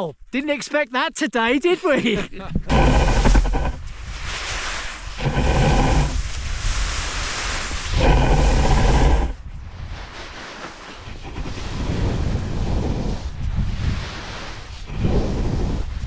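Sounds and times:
wind buffeting microphone: 0:02.4 - 0:10.2, 0:11.0 - 0:16.0
skis scraping through snow: 0:02.7 - 0:16.0.

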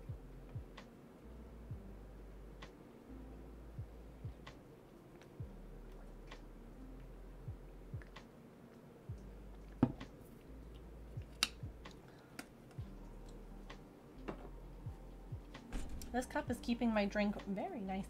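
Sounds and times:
cup knocking on wooden table: 0:09.8 - 0:10.0, 0:14.3 - 0:14.5.

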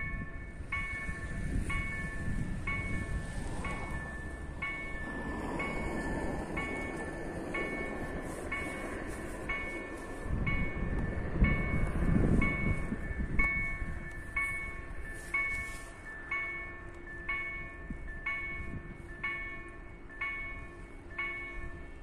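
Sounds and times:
low rumble: 0:00.0 - 0:15.1
level-crossing warning bell: 0:00.0 - 0:22.0.

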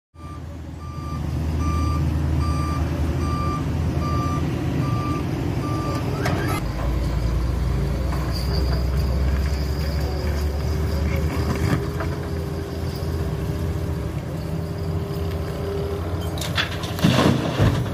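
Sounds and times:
reversing alarm beeping: 0:00.2 - 0:06.6
heavy diesel engines running: 0:00.2 - 0:17.9.

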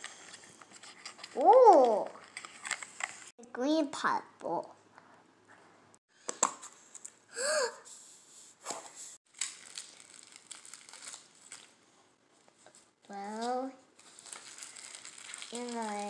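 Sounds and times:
packaging crinkling: 0:09.3 - 0:11.8, 0:14.0 - 0:16.0.

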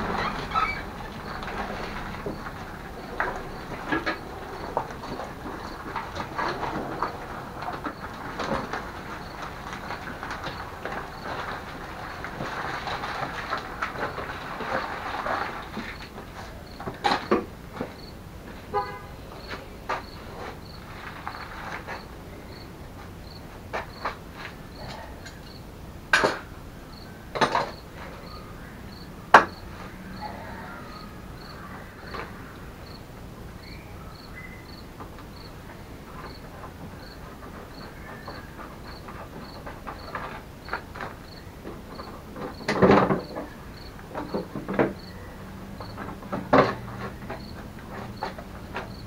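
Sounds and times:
plastic panels knocking and clattering: 0:00.0 - 0:18.0, 0:27.3 - 0:28.2, 0:35.0 - 0:49.0
cricket chirping: 0:00.0 - 0:18.2, 0:18.8 - 0:25.7, 0:26.3 - 0:35.6, 0:36.2 - 0:45.2, 0:45.8 - 0:49.0.

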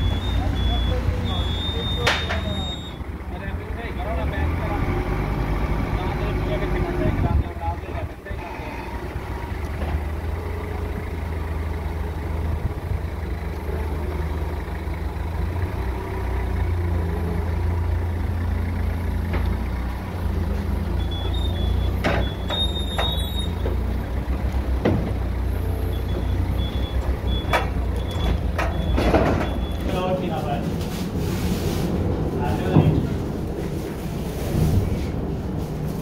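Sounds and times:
reversing alarm beeping: 0:00.0 - 0:03.1, 0:21.0 - 0:23.6, 0:25.8 - 0:30.0
forklift engine droning: 0:00.0 - 0:36.0.

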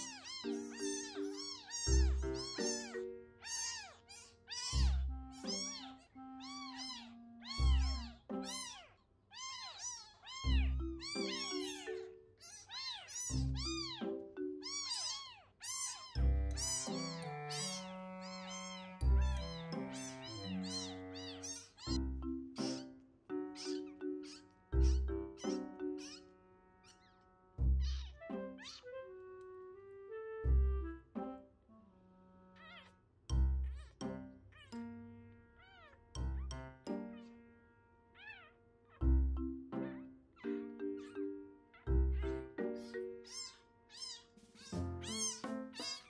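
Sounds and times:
kittens mewing: 0:00.0 - 0:22.0, 0:22.6 - 0:27.2, 0:27.8 - 0:29.0, 0:32.6 - 0:33.0, 0:35.6 - 0:36.0, 0:39.8 - 0:46.0.

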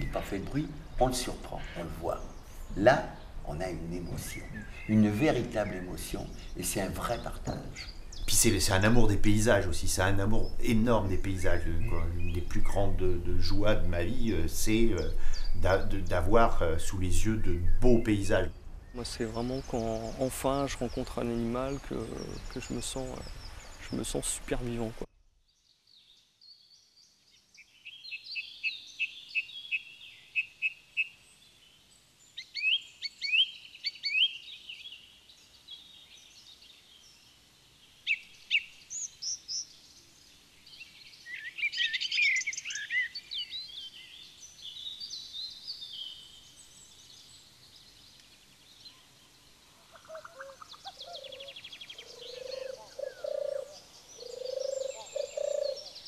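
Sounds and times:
low repeating bird call: 0:00.0 - 0:25.1, 0:48.9 - 0:56.0
wild birds singing: 0:00.0 - 0:56.0.

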